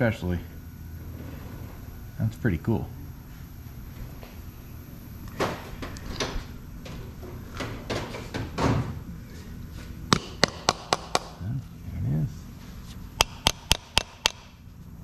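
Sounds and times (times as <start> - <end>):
hammer tapping metal: 10.1 - 11.4, 13.2 - 14.5.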